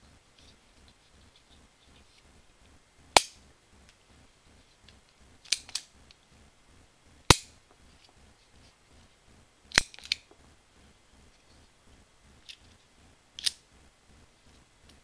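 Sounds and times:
plastic toy pistol clicks: 5.5s - 5.9s, 7.3s - 7.5s, 9.7s - 10.2s, 13.4s - 13.6s.

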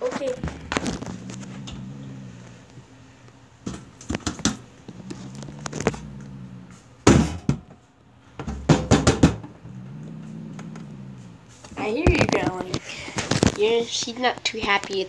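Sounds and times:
cat growling low: 0.0s - 7.2s, 9.1s - 13.4s
cat spitting: 0.2s - 7.2s, 9.4s - 13.4s.

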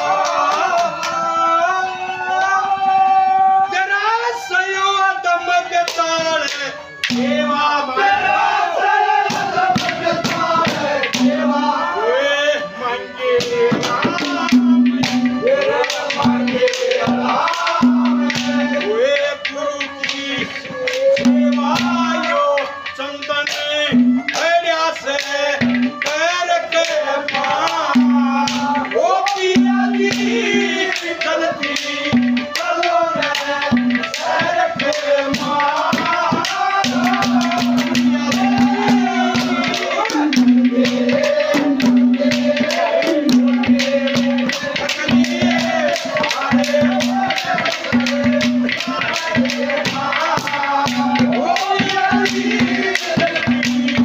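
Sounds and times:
man singing: 0.0s - 54.0s
harmonium: 3.4s - 16.8s, 17.4s - 42.2s
drum beat: 5.9s - 12.0s, 12.6s - 54.0s.

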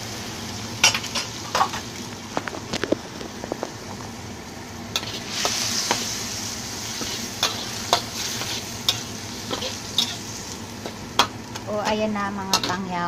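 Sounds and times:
fish sizzling in a wok: 0.0s - 13.0s
metal spatula scraping a wok: 5.0s - 10.6s.

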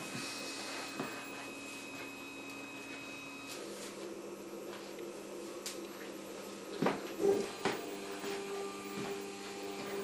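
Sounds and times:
stepper motors humming: 6.7s - 10.0s.

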